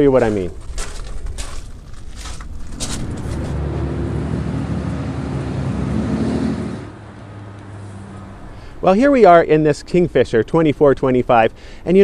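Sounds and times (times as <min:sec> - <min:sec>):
footsteps on gravel: 0:00.0 - 0:03.6
vehicle engine rumble: 0:00.0 - 0:10.2.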